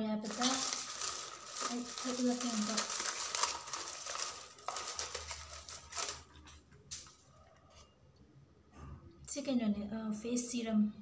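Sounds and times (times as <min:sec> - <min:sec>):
paper wrap crinkling: 0:00.0 - 0:07.2.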